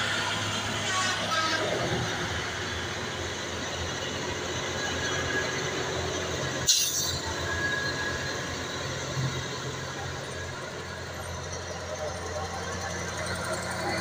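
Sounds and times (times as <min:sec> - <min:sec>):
truck engine drone: 0:00.0 - 0:14.0
thin squeal: 0:04.8 - 0:08.9.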